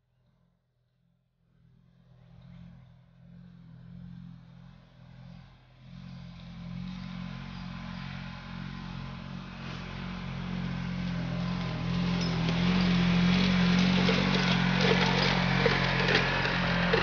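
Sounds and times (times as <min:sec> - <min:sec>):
vehicle engine running under load: 0:01.6 - 0:17.0.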